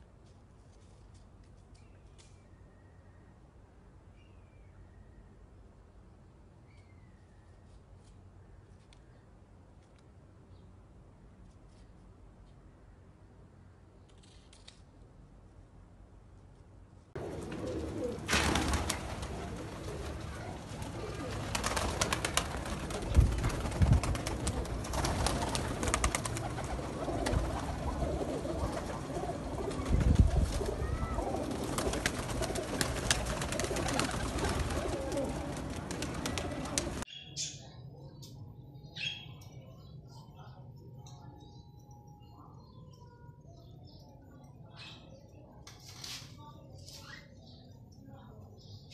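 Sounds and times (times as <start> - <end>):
pigeons cooing: 17.2 - 37.0.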